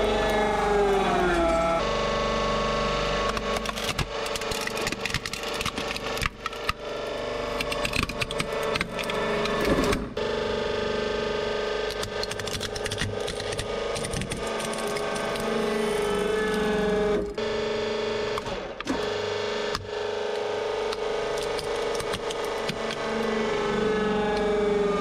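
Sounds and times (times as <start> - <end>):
hydraulic pump whining: 0.0 - 10.2, 11.9 - 25.0
plastic cracking and snapping: 3.3 - 6.8.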